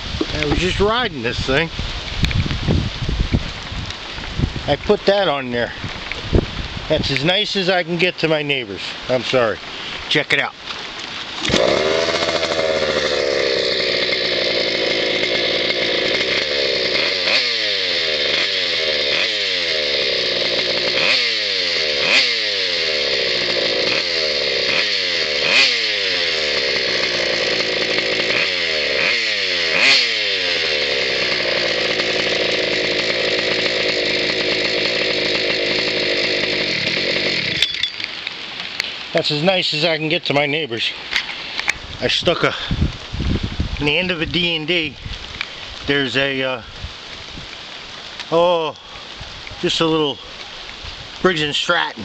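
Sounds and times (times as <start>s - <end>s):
scooter two-stroke engine revving: 0.2s - 1.1s, 11.4s - 37.9s
scooter engine idling: 11.4s - 37.9s.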